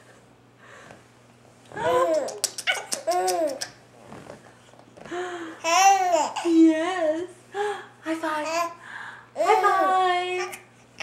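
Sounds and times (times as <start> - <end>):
baby laughing and squealing: 1.8 - 3.8.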